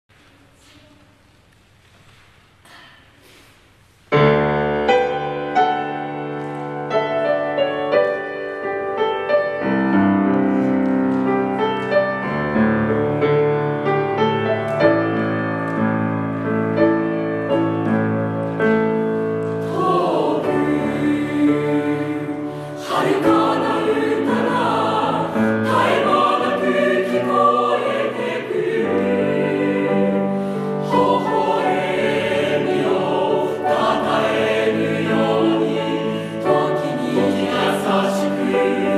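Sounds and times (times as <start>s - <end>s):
choir singing: 18.7s - 38.9s.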